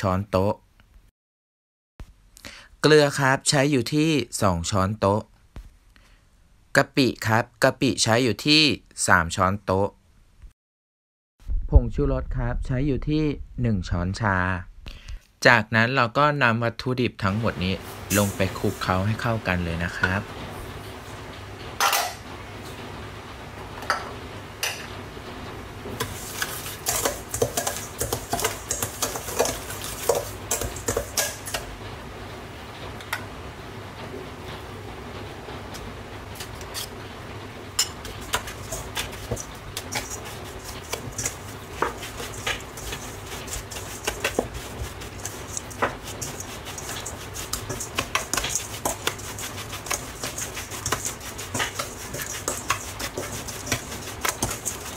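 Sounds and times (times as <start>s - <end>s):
metal spoon scraping steel bowl: 26.0s - 31.6s, 37.8s - 54.9s.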